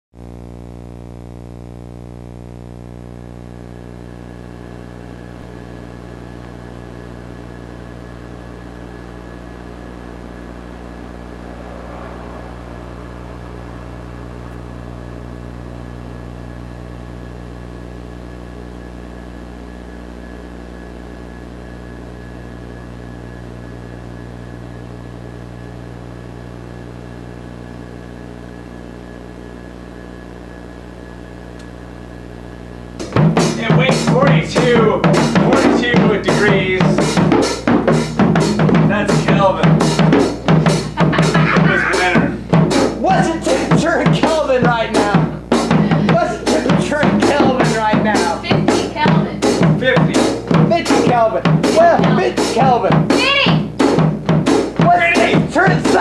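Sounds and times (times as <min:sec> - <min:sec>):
droning hum: 0:00.2 - 0:56.0
brief rush of noise: 0:10.4 - 0:15.7.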